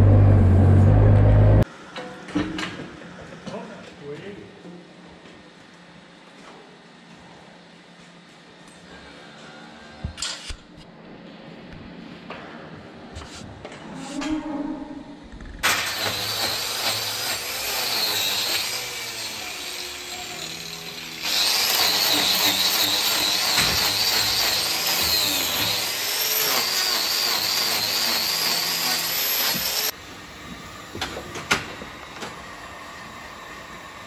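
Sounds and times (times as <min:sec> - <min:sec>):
angle grinder cutting hoof: 0:15.6 - 0:30.0.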